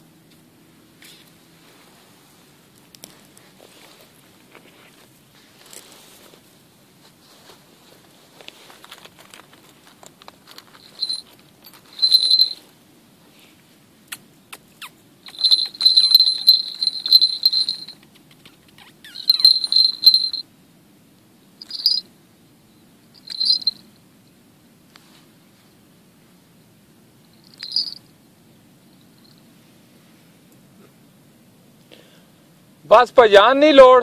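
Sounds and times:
faint rustling clicks: 0:02.7 - 0:12.7, 0:14.1 - 0:20.4
small brass bell jingling: 0:10.4 - 0:12.7, 0:15.2 - 0:18.4, 0:19.0 - 0:20.5, 0:21.6 - 0:22.1, 0:23.1 - 0:23.9, 0:27.2 - 0:28.1.

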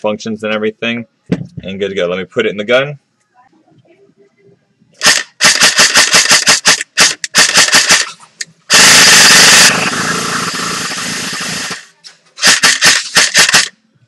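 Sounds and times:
automatic gunfire bursts: 0:05.0 - 0:13.8
loud blast of noise: 0:08.7 - 0:11.8.

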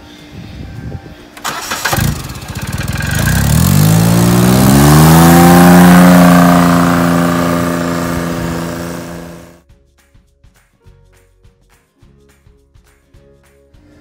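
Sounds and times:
utility vehicle engine revving: 0:01.4 - 0:09.6.

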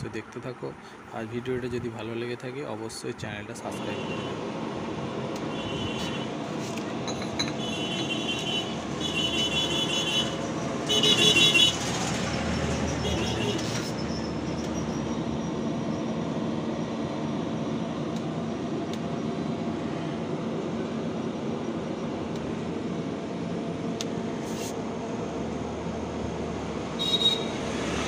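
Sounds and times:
road traffic rumble: 0:00.0 - 0:28.0
high-pitched horn toots: 0:05.5 - 0:06.4, 0:07.6 - 0:11.8, 0:12.9 - 0:14.0, 0:27.0 - 0:27.7.

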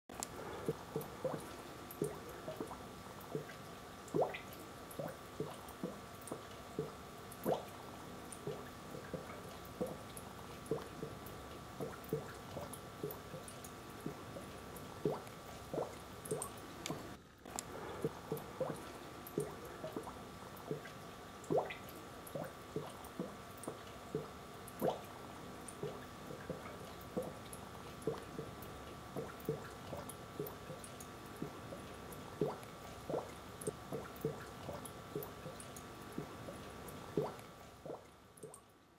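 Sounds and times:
steady hum: 0:00.1 - 0:38.6
underwater bubbling pops and gurgles: 0:00.4 - 0:17.2, 0:17.8 - 0:38.7.

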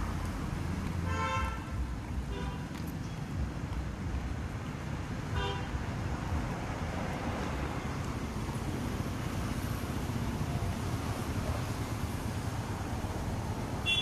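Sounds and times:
road traffic rumble: 0:00.0 - 0:14.0
vehicle horn toot: 0:01.1 - 0:01.8.

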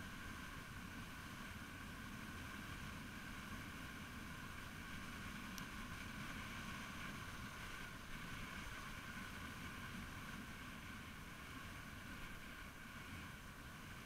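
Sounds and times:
faint tick: 0:05.5 - 0:05.8.

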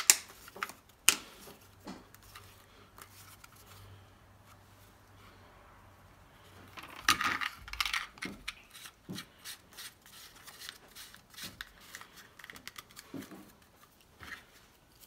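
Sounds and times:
plastic scrapes and clicks: 0:06.7 - 0:15.0.

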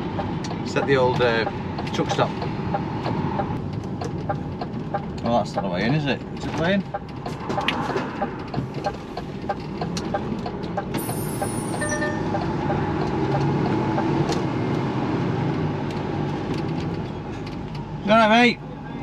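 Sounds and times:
turn indicator ticking: 0:00.0 - 0:14.8
diesel truck engine: 0:00.0 - 0:19.0
short beep: 0:11.0 - 0:12.6.

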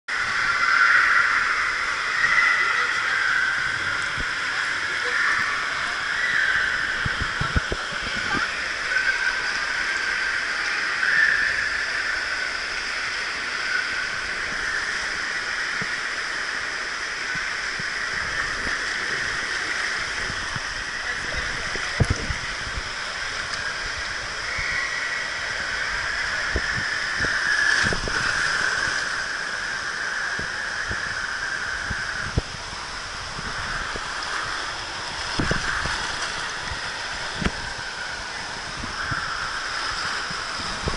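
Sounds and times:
water rushing down slide: 0:00.1 - 0:40.9.

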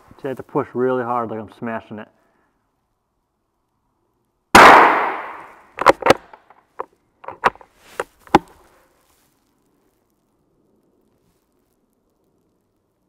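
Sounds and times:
rifle shot: 0:04.6 - 0:06.1.

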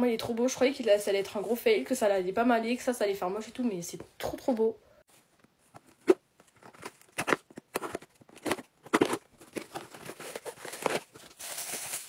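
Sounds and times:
plastic bag crinkling: 0:06.5 - 0:12.0.

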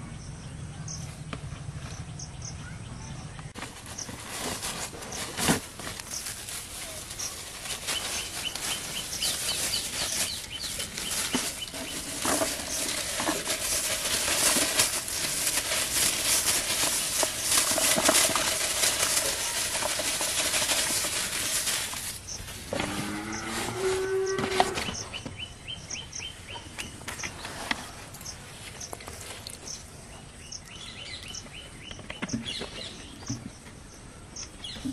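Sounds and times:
rustling and crackling with clicks: 0:03.4 - 0:25.5.

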